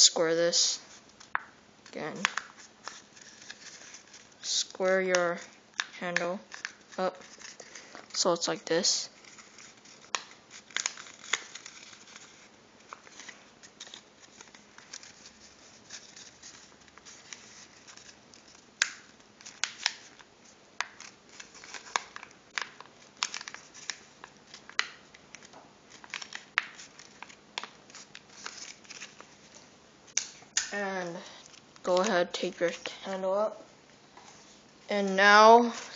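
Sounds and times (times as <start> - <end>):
paper crinkling and clicking: 5.1 - 8.3, 9.1 - 30.7.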